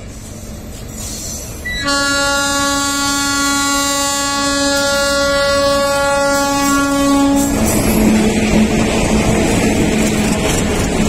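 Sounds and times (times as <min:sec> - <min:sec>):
train wheels rumbling and clattering: 0:00.0 - 0:02.6, 0:03.8 - 0:11.0
locomotive horn blast: 0:01.7 - 0:07.8.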